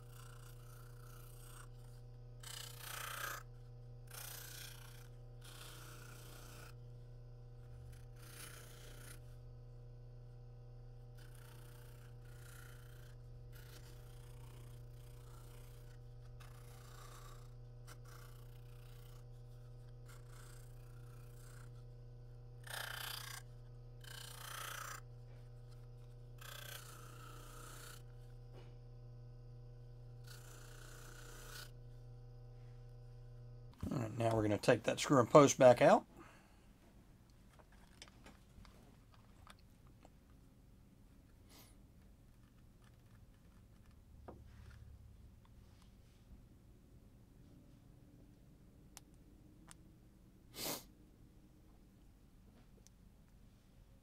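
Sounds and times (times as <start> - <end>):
plastic rasping on polishing wheel: 0.0 - 28.7, 29.9 - 32.0
bench buffer humming: 0.0 - 49.9.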